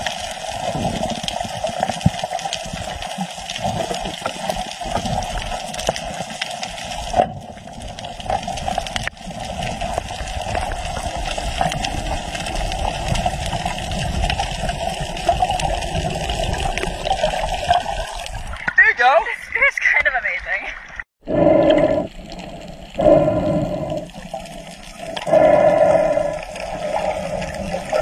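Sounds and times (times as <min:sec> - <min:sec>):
small clicks and crackles: 0:00.0 - 0:18.3
underwater rush of water: 0:00.0 - 0:18.7, 0:20.9 - 0:28.0.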